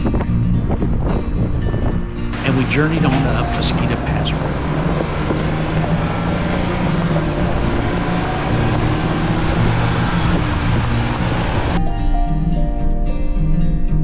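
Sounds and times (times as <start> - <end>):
vehicle engine running: 2.3 - 11.8
tyre and trail noise: 2.4 - 11.8.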